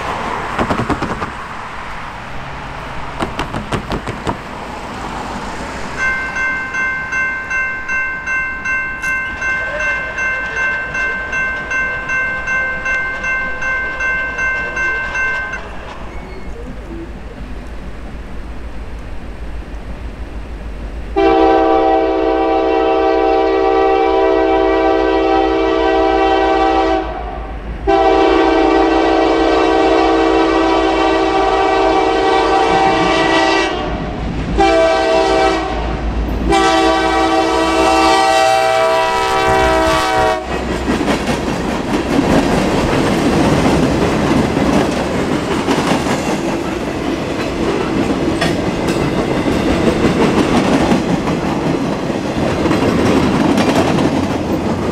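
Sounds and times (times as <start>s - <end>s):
train wheels clacking over rail joints: 0.4s - 1.5s, 3.1s - 4.6s, 39.6s - 54.9s
locomotive air horn blasts: 21.2s - 40.7s.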